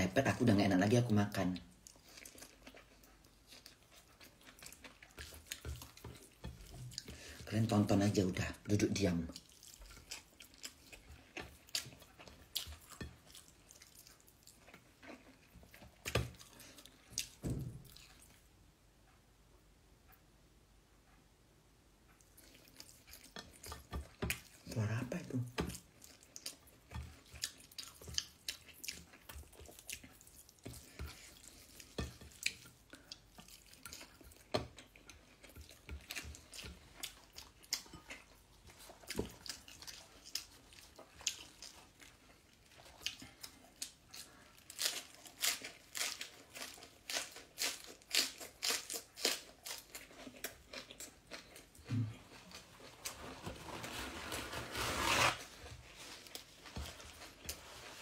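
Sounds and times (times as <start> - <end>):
chewing and mouth smacking: 1.7 - 7.5, 9.3 - 18.5, 22.2 - 24.7, 25.5 - 52.8.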